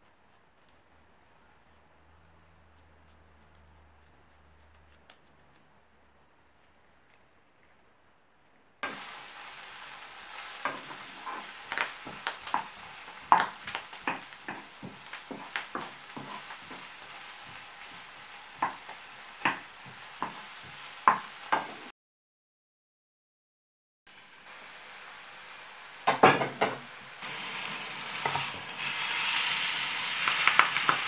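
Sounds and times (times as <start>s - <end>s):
onions sizzling in oil: 8.8s - 21.9s, 24.1s - 31.0s
spatula scraping a pan: 10.4s - 21.9s, 27.2s - 31.0s.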